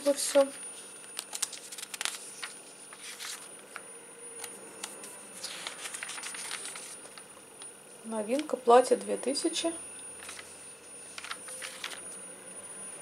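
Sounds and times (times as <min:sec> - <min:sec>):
catalogue pages rustling: 0:00.0 - 0:07.3, 0:08.3 - 0:09.6, 0:10.2 - 0:12.3
paper clicks: 0:00.1 - 0:03.8, 0:04.4 - 0:07.2, 0:10.2 - 0:10.5, 0:11.1 - 0:12.0
high-pitched whine: 0:02.1 - 0:08.2, 0:08.9 - 0:13.0.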